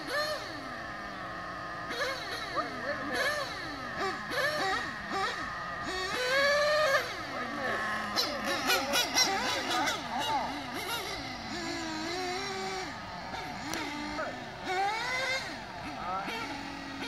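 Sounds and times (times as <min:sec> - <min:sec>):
nitro engines revving: 0:00.0 - 0:17.0
sharp engine crackles: 0:00.0 - 0:17.0.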